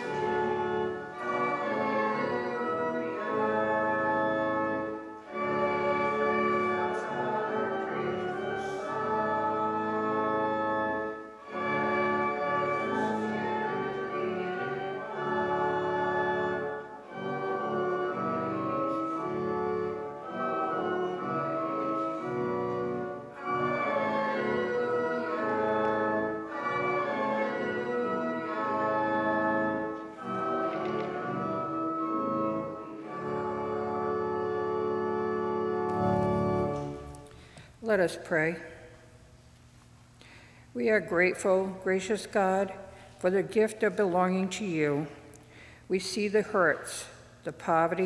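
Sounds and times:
organ playing held chords: 0:00.0 - 0:39.3.

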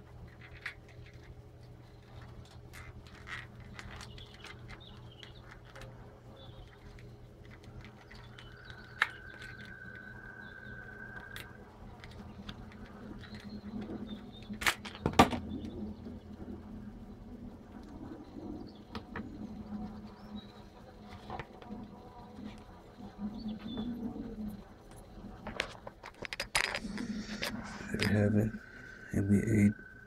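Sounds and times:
plastic figure clicking and scraping: 0:00.0 - 0:15.4, 0:24.9 - 0:28.3
steady low hum: 0:00.0 - 0:30.0
thin steady tone: 0:06.0 - 0:14.5, 0:26.7 - 0:30.0.

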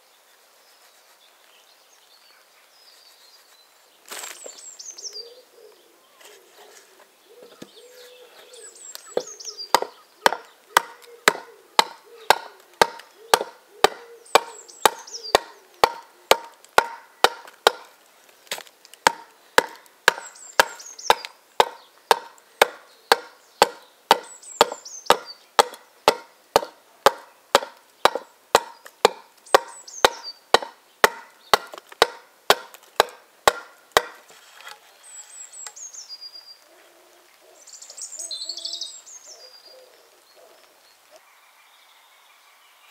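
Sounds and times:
axe chopping wood: 0:09.0 - 0:34.8.

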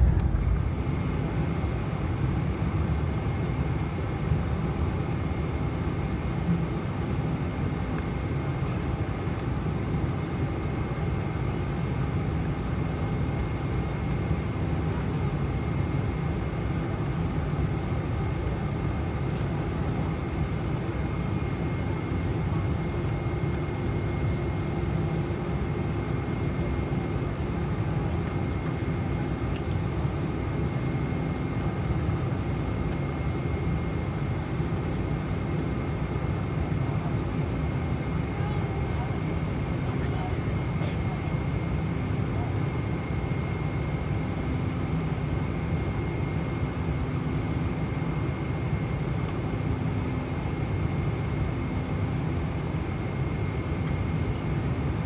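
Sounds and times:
thin steady whine: 0:00.0 - 0:04.1
aircraft cabin engine rumble: 0:00.0 - 0:55.0.

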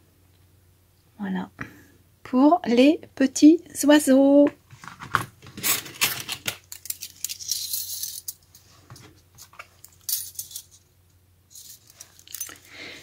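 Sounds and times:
metal dies clinking and rattling: 0:05.6 - 0:08.4.

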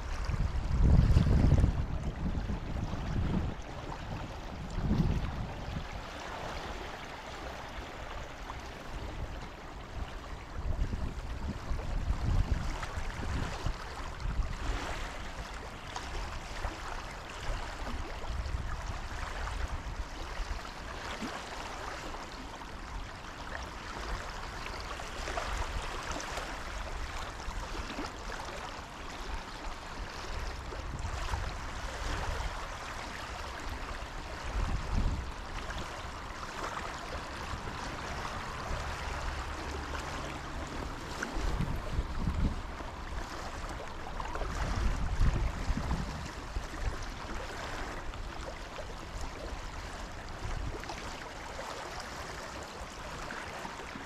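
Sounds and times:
low rumbles on microphone: 0:00.0 - 0:08.0, 0:37.3 - 0:46.8
river current rushing: 0:00.0 - 0:12.2, 0:20.7 - 0:54.0.

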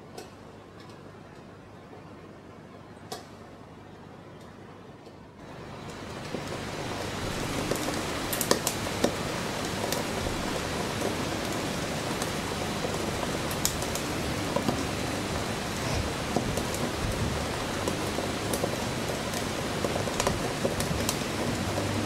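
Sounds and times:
sharp crackles and spits: 0:05.7 - 0:22.0.

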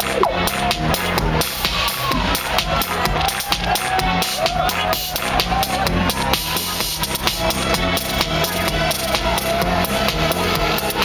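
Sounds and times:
held synth tone: 0:00.0 - 0:00.4
drum machine beat: 0:00.0 - 0:05.6
bass line: 0:00.0 - 0:10.6.

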